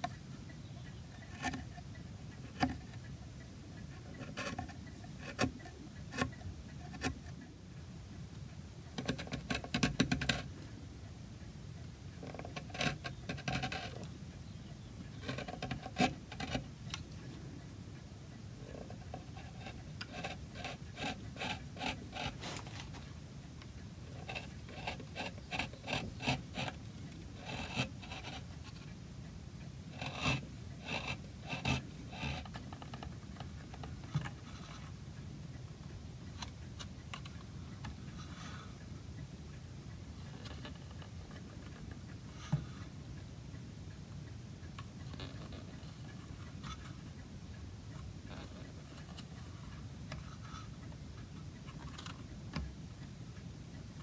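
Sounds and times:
carving tool scraping wood: 0.8 - 3.1, 3.8 - 7.4, 9.0 - 10.6, 12.2 - 14.2, 15.1 - 17.1, 18.6 - 23.1, 24.1 - 28.9, 29.9 - 35.0, 45.1 - 47.0, 48.0 - 50.8.

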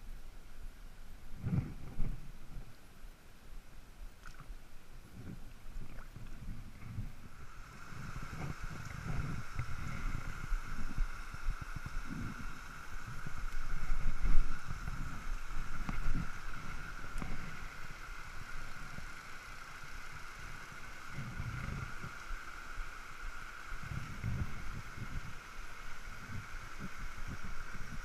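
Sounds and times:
low rumble of wind: 0.0 - 28.0
stream running over rocks: 0.0 - 28.0
microphone handling noise: 1.3 - 2.7, 5.1 - 17.6.

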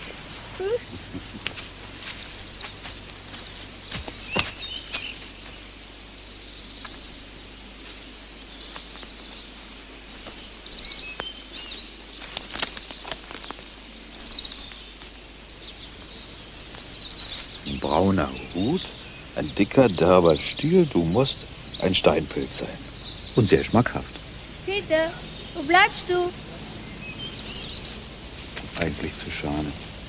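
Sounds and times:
footsteps on leaf litter: 0.0 - 5.7, 12.1 - 13.7, 15.8 - 18.8, 27.8 - 30.0
faint bird chirps: 0.0 - 30.0
songbird high trill: 14.1 - 30.0.

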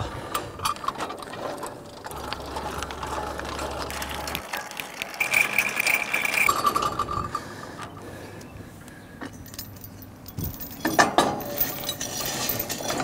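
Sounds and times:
jack gears clicking: 0.6 - 7.4.

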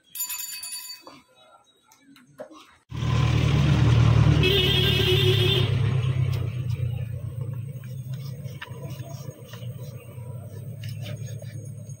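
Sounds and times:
engine rumbling: 2.9 - 12.0.

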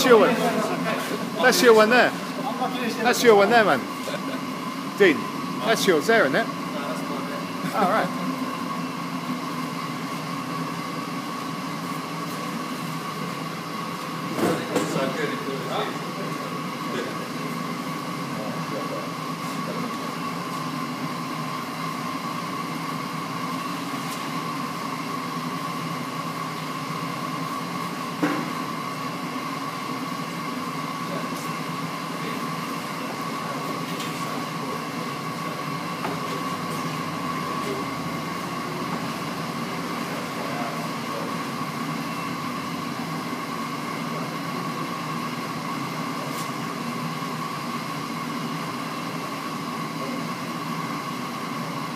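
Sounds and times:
machine drone with high whine: 0.0 - 51.9.

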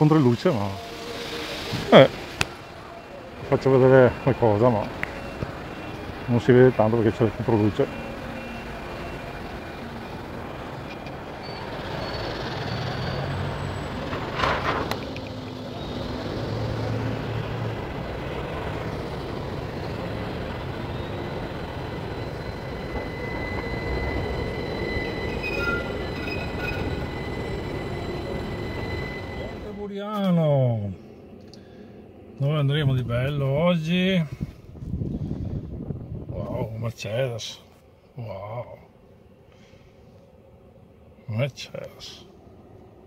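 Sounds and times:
high wheel squeal: 0.0 - 30.7
city traffic: 0.0 - 43.0
tram running on rails: 0.0 - 43.0.

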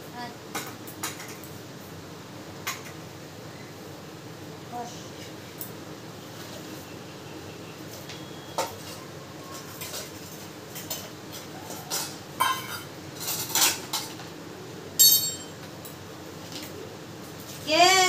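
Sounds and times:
steel bowls clinking together: 10.8 - 13.8, 15.0 - 15.6.

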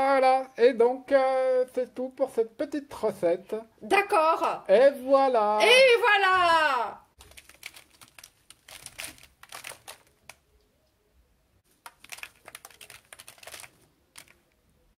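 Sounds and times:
popcorn rustling and crackling: 7.2 - 10.7, 11.6 - 14.9.

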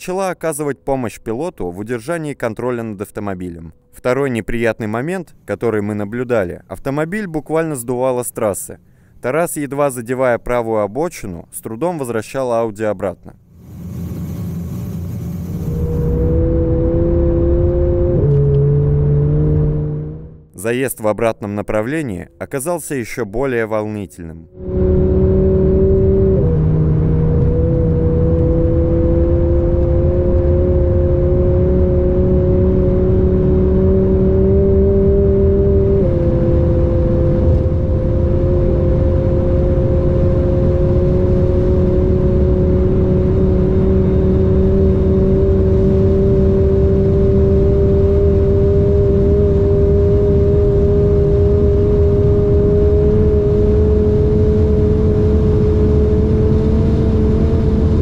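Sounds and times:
car engine accelerating: 13.5 - 20.6, 24.5 - 58.0.

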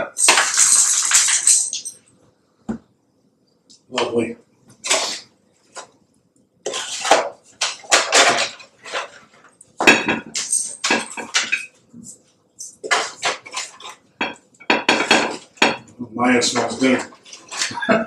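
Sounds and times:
metal utensil scraping sheet pan: 6.7 - 9.3, 12.8 - 14.0.

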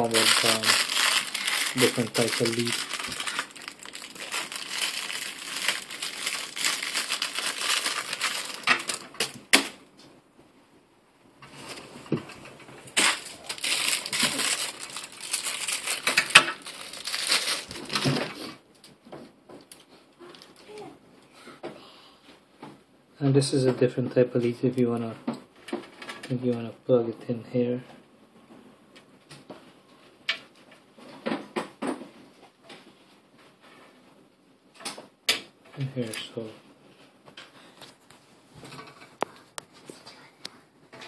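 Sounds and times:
plastic packaging crinkling: 0.0 - 9.5, 12.9 - 18.4.

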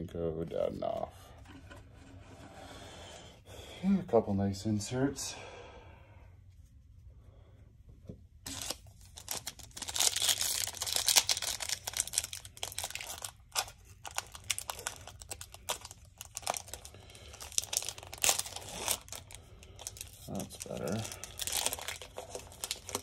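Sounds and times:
card pack wrapper tearing and crinkling: 8.4 - 23.0.

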